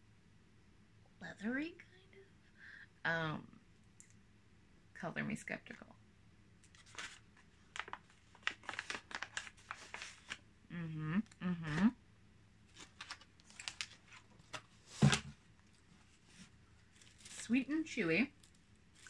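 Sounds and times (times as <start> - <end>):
snack pouch crinkling: 6.7 - 10.4, 12.7 - 14.2
person humming: 10.7 - 12.0.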